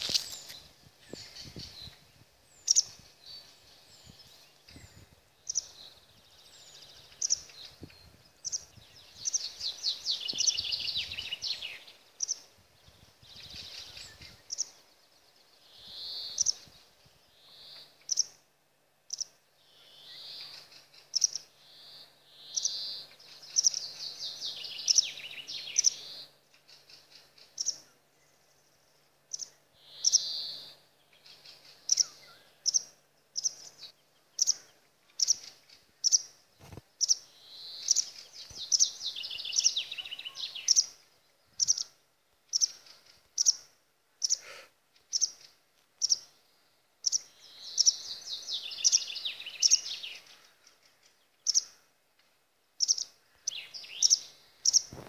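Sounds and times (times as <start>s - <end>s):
songbird descending rapid song: 0.0s - 16.7s, 37.0s - 41.0s, 47.0s - 50.3s.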